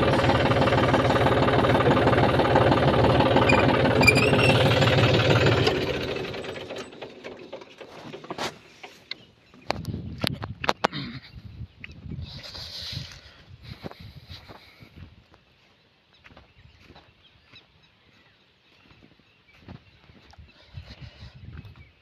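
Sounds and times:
tractor diesel engine running: 0.0 - 9.5.

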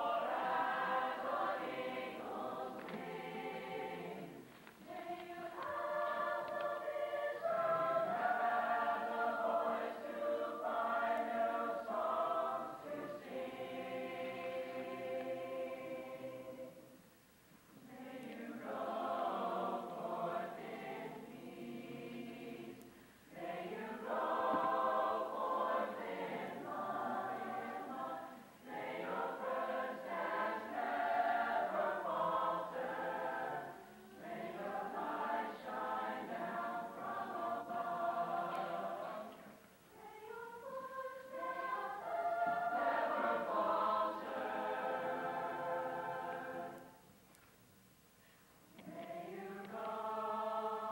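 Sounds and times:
chorus singing: 0.0 - 17.1, 17.7 - 47.2, 48.7 - 50.9.

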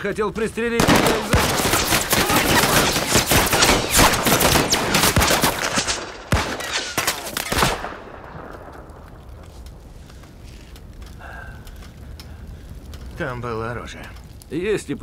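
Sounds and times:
automatic gunfire: 0.8 - 8.1.

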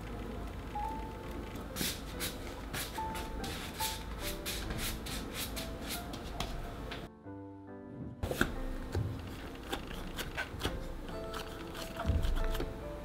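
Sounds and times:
quiet background music: 0.0 - 13.0
hands rubbing dough: 1.8 - 6.6.

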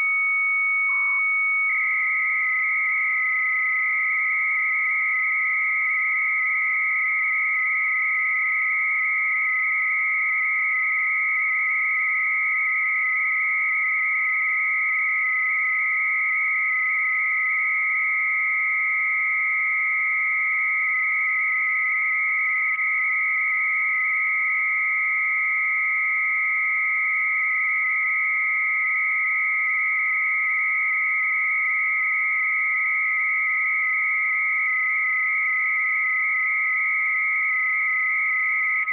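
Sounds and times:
modem tones: 0.0 - 9.1, 30.9 - 38.9.

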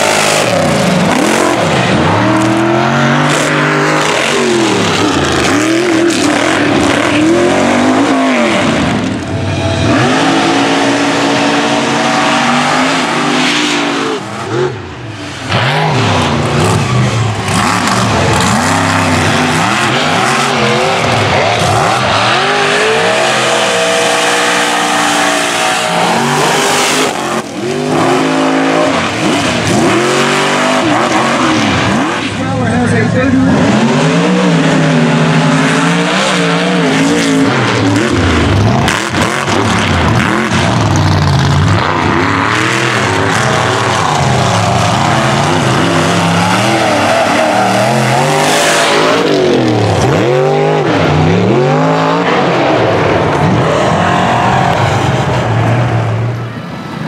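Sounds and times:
truck engines revving: 0.0 - 57.0.

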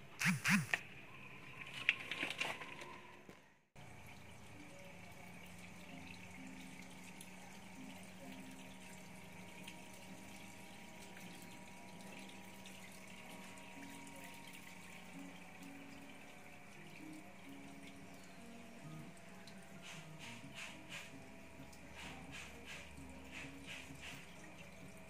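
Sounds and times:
faint low pump hum: 3.4 - 25.0
water jet splashing on pond: 21.9 - 24.8.

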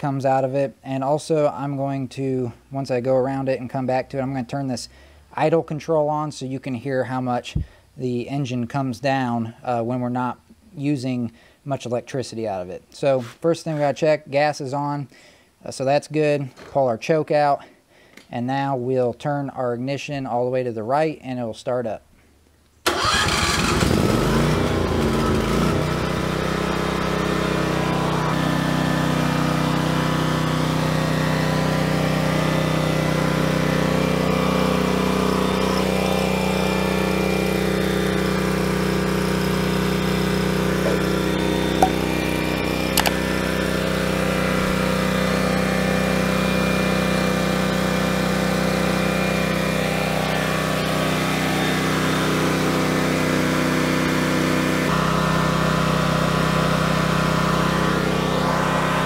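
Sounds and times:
generator engine running: 22.9 - 59.0
brief clicks: 43.0 - 43.2.

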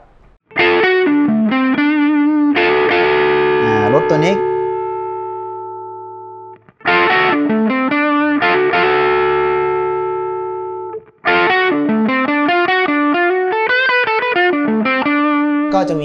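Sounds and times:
distorted electric guitar: 0.0 - 16.0.

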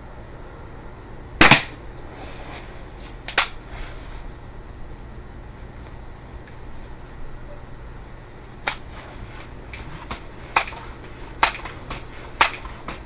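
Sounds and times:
low steady hum: 0.0 - 13.0
sharp clicks and knocks: 8.6 - 8.9, 9.7 - 13.0.

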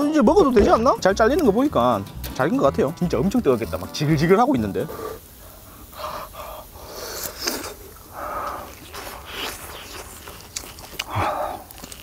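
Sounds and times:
breathy huffs of air: 4.8 - 12.0
chewing clicks: 8.4 - 12.0.

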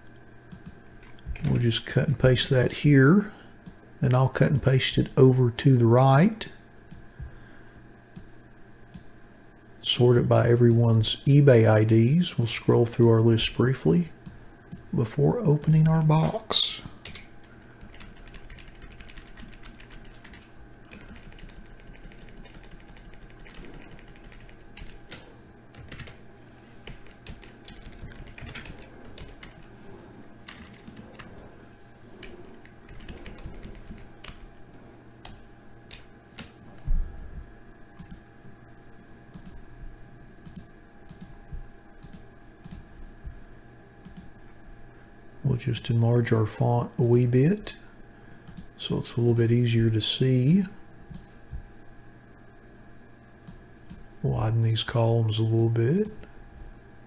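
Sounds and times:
steady electrical hum: 0.0 - 57.0
keyboard and mouse clicking: 0.5 - 1.6, 26.9 - 29.7, 38.0 - 38.2, 39.3 - 39.6, 40.4 - 41.4, 42.0 - 42.9, 44.0 - 44.3, 48.5 - 48.7, 53.4 - 54.1.

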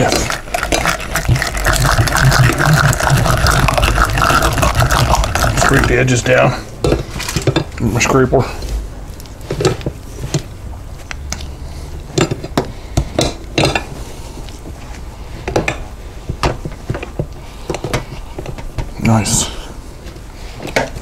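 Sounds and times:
spatula scraping glass cup: 0.0 - 5.9.

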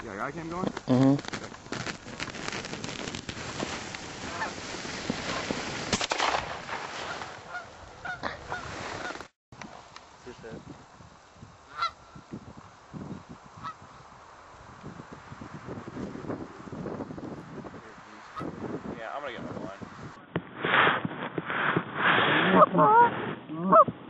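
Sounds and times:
geese honking: 7.1 - 9.2, 11.7 - 12.0, 22.6 - 23.1.

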